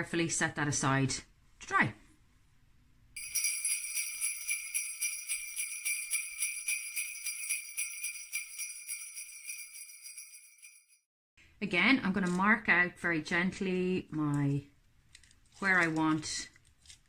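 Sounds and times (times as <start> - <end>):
sleigh bells jingling: 3.2 - 11.1.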